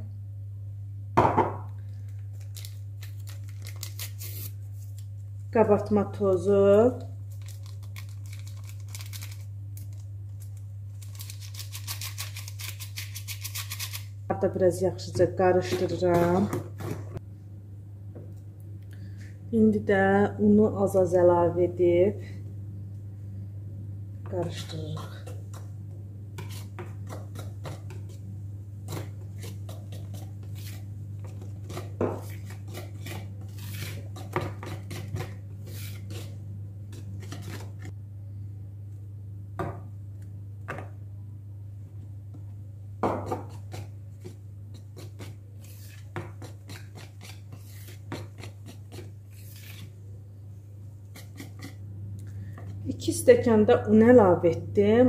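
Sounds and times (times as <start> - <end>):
steady low hum: 0.0 - 55.0
whisk clicking and scraping bowl: 26.4 - 28.3, 28.9 - 37.8, 43.1 - 49.9, 51.0 - 51.8.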